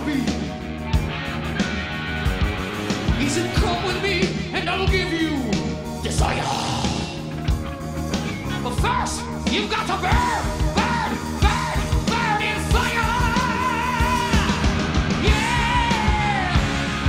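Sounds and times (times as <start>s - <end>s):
heavy metal band playing live: 0.0s - 17.0s
man singing with vibrato: 3.3s - 7.3s, 8.6s - 16.9s.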